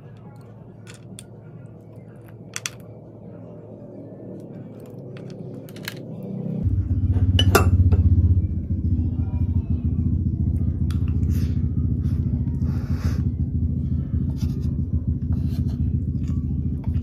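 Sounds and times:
loud low rumble: 2.8s - 17.0s.

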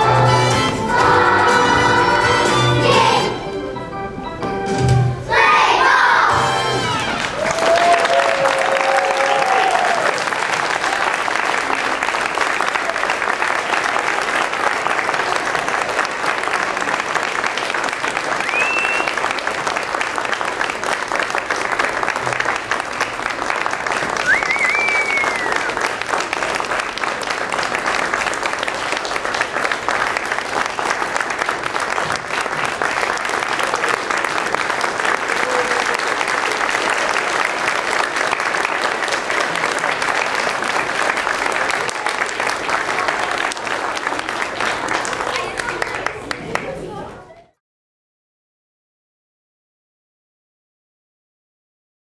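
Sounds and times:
audience applauding: 6.8s - 47.1s
rising and falling whistle: 18.4s - 19.2s, 24.2s - 25.7s.

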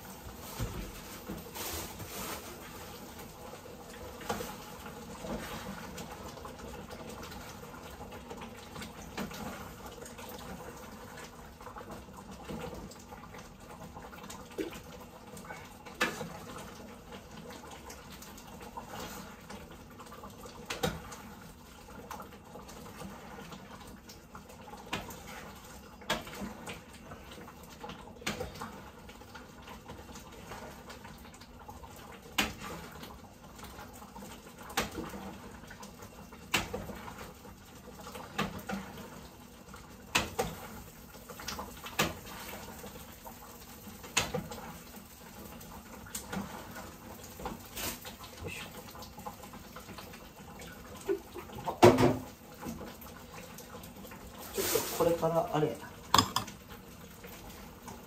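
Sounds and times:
utensil knocking against pot: 56.2s - 56.5s.

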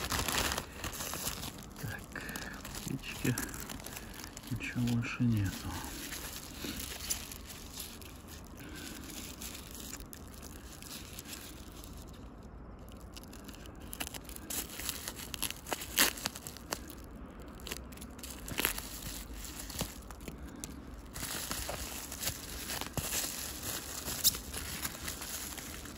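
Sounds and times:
bubble wrap crinkling: 0.0s - 25.9s.

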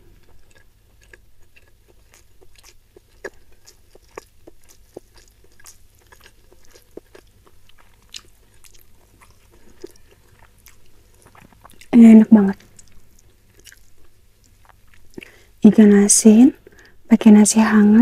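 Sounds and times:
mouth chewing food: 0.0s - 15.6s.

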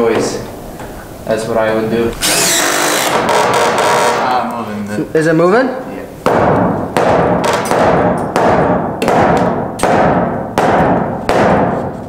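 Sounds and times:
sledgehammer striking wooden joist: 6.2s - 12.0s.

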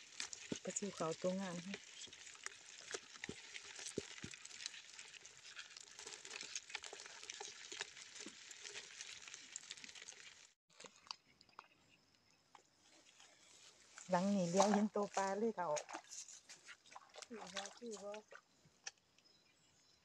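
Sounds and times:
fish flicking against bucket: 0.0s - 5.2s, 14.4s - 18.4s
crabs scrabbling in plastic bucket: 0.0s - 11.7s, 13.0s - 18.5s.

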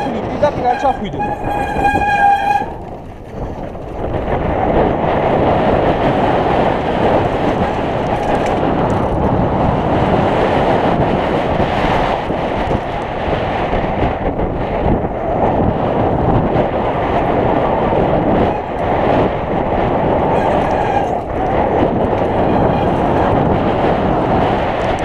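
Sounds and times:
steady squeal: 0.0s - 4.0s, 20.2s - 23.6s
mountain bike rumbling and rattling: 0.0s - 25.0s
wind buffeting microphone: 0.0s - 25.0s.

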